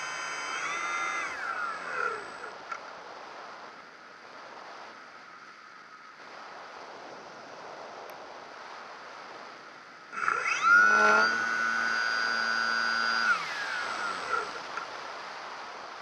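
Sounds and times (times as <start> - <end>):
model aircraft motor whining: 0.0 - 2.7, 10.1 - 14.9.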